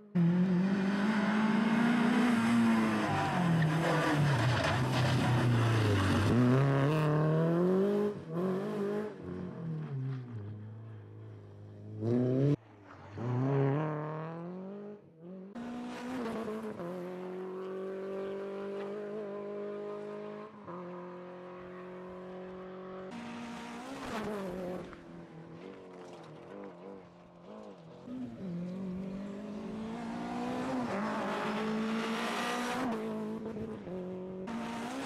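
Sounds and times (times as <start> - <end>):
rally car engine revving: 0.2 - 10.5, 27.6 - 35.0.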